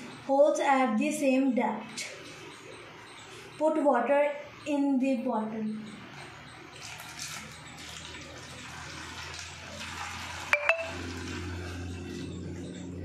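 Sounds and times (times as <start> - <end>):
water pouring into plastic bottle: 6.8 - 11.4.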